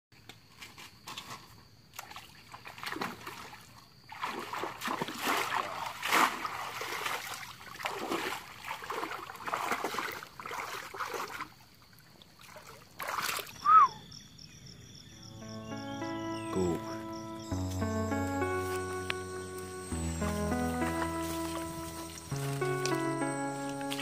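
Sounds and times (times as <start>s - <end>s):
water splashing from wading: 2.6s - 11.5s, 12.3s - 13.6s.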